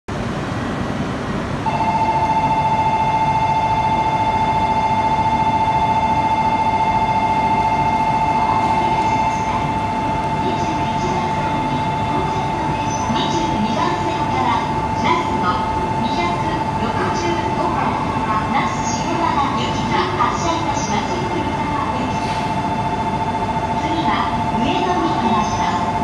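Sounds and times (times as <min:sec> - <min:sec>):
electronic trilling departure bell: 0:01.6 - 0:10.4.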